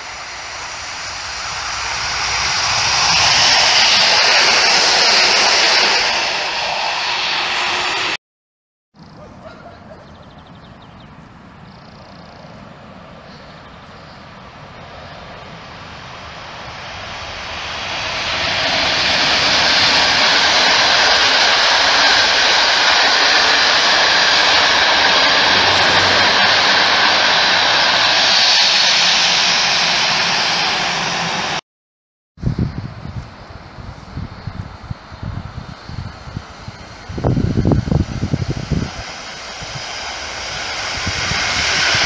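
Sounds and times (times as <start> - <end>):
rush of wheels on rail: 0.0 - 8.2, 14.9 - 31.6, 33.5 - 42.0
train passing at speed: 0.0 - 8.2, 9.1 - 31.6, 33.0 - 42.0.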